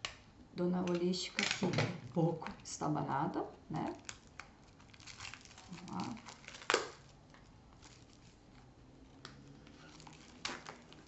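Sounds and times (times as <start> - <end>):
cardboard box crinkling: 4.1 - 8.7, 9.5 - 11.0.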